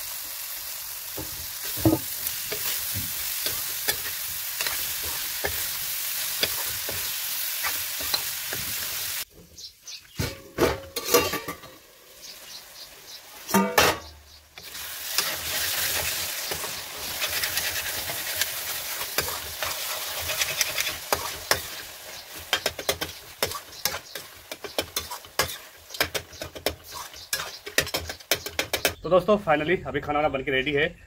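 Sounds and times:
curry sizzling in a pan: 0.0s - 10.1s, 10.9s - 28.9s
metal spatula scraping a pan: 1.6s - 9.1s, 10.2s - 11.7s, 13.5s - 29.0s
pan lid metallic clang: 10.2s - 11.7s, 13.5s - 14.1s.

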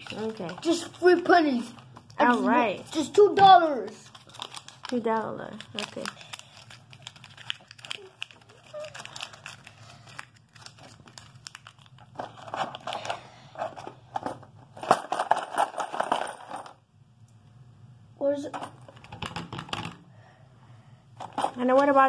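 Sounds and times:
paper bill crinkling: 3.6s - 13.2s.

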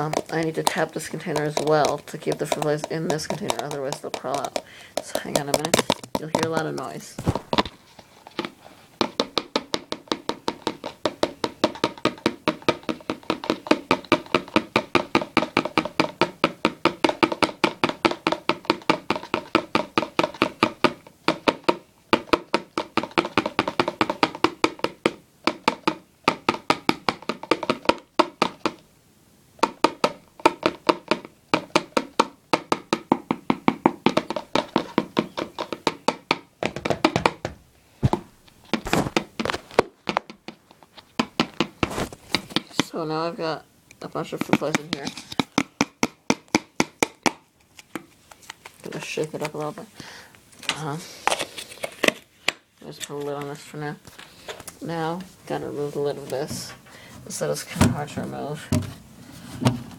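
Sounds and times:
containers tapped by hand: 0.0s - 28.8s, 29.6s - 43.2s, 43.9s - 56.8s.

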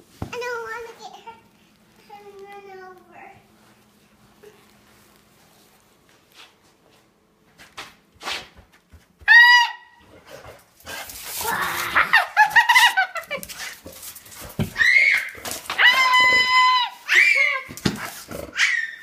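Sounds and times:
dogs scuffling: 10.1s - 18.8s
dog crying: 14.8s - 17.8s, 18.5s - 19.0s.

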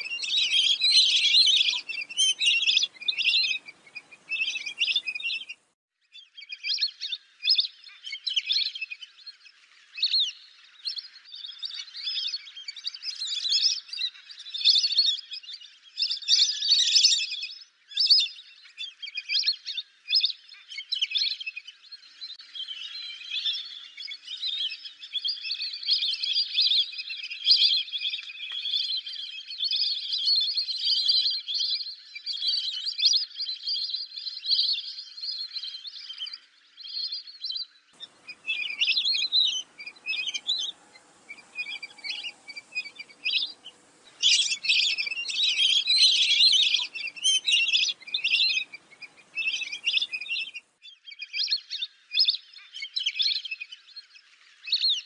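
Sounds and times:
ducks whistling: 0.0s - 5.6s, 38.0s - 50.6s
faint background hiss: 0.0s - 5.8s, 38.0s - 50.8s.

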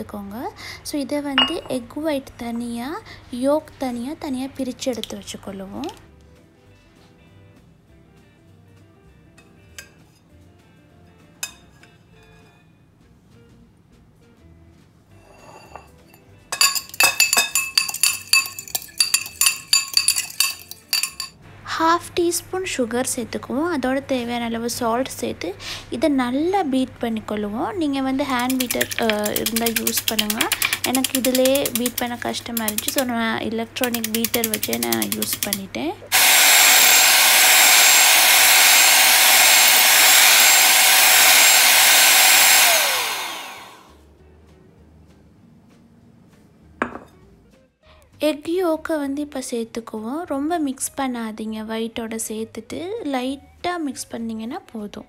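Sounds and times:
fork clinking against ramekin: 15.2s - 21.4s
electric hand mixer whirring: 28.3s - 33.1s, 33.8s - 35.5s, 36.1s - 44.0s.

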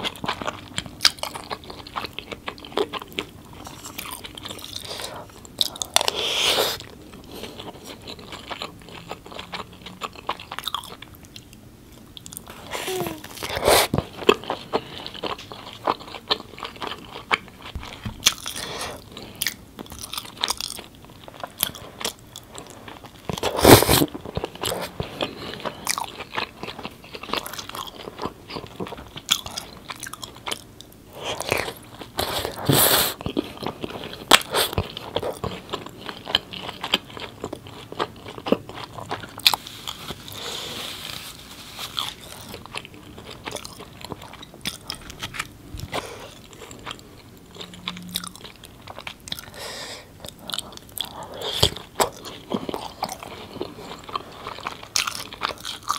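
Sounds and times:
person biting and chewing: 41.8s - 55.9s.

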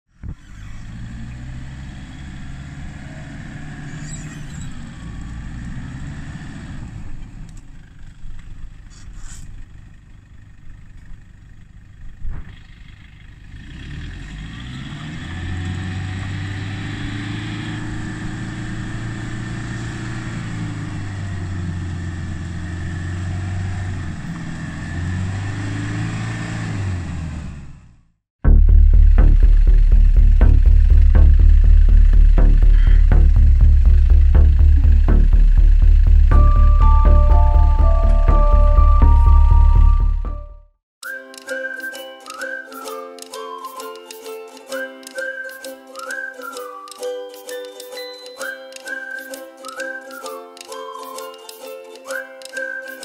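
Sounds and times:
engine straining: 0.1s - 40.6s.

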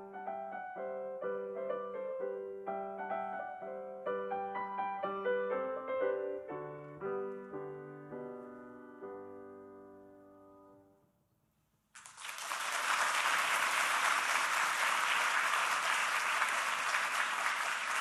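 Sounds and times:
audience applause: 12.0s - 18.0s.

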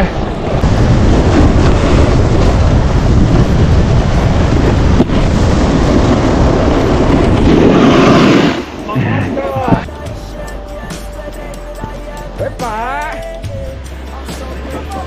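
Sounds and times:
snowboard sliding on packed snow: 0.0s - 9.7s
wind rushing over microphone: 0.0s - 9.9s.

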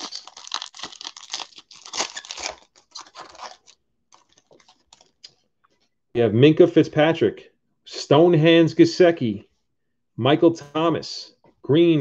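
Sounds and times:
foil wrapper tearing and crinkling: 0.0s - 5.2s.

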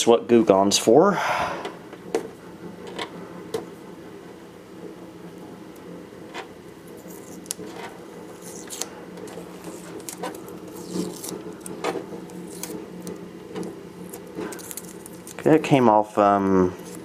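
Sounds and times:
steady low hum: 0.0s - 17.0s
fingernail scraping sticker: 6.4s - 13.2s.

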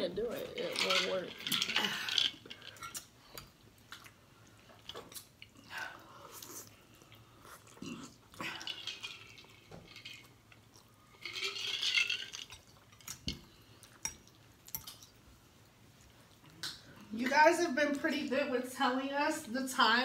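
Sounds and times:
chewing: 1.4s - 17.1s.

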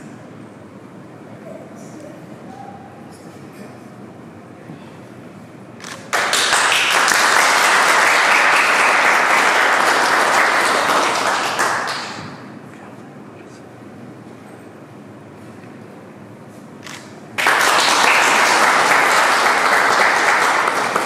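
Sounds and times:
crowd applauding: 5.8s - 12.5s, 16.9s - 21.0s.

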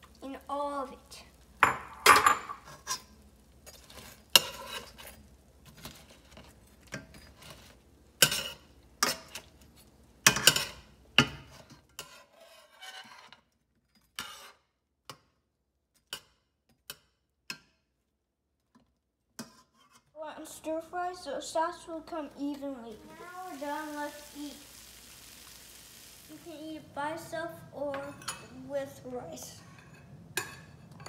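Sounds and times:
metal spatula scraping frying pan: 2.6s - 9.5s, 11.6s - 14.6s, 19.4s - 20.1s.

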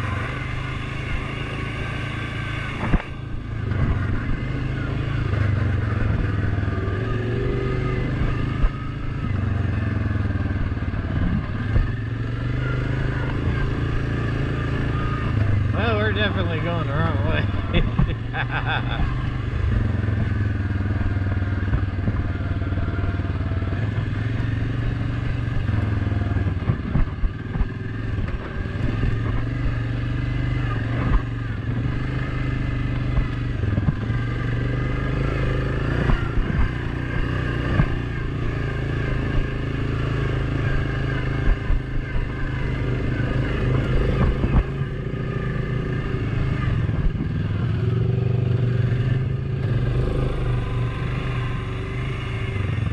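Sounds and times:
atv engine running: 0.0s - 52.9s
knocks and rattles over bumps: 17.4s - 49.3s.

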